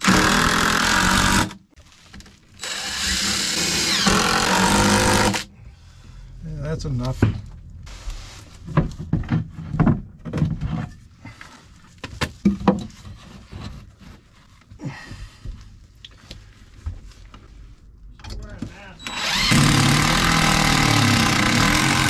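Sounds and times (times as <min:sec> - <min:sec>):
wooden lumber knocking and thudding: 0:08.7 - 0:10.8.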